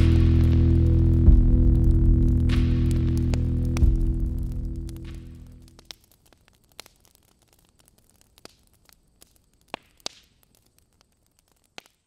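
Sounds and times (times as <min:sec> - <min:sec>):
bonfire crackling: 0:00.0 - 0:12.0
burning wood popping: 0:00.0 - 0:12.0.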